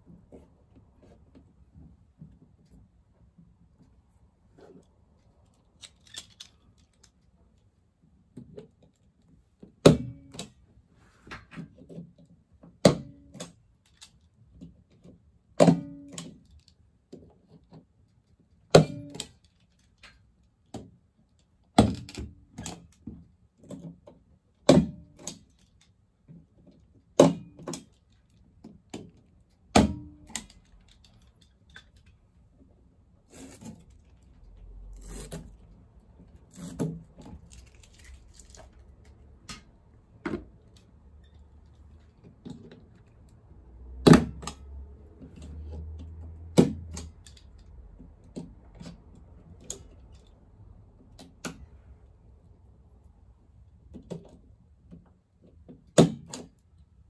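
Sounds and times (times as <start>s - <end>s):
stapler snapping staples into wall: 56.0s - 56.5s.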